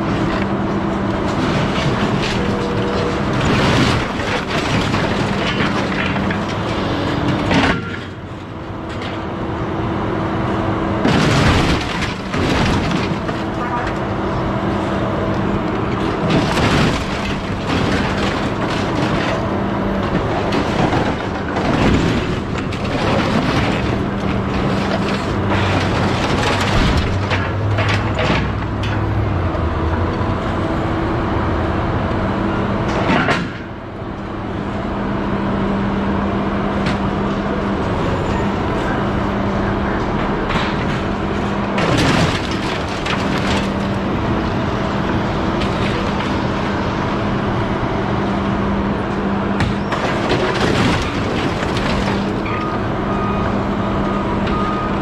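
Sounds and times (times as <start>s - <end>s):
scrap metal clattering and banging: 0.0s - 9.3s, 11.0s - 14.1s, 15.9s - 29.2s, 40.1s - 47.2s, 49.6s - 52.8s
heavy machine engine running: 0.0s - 55.0s.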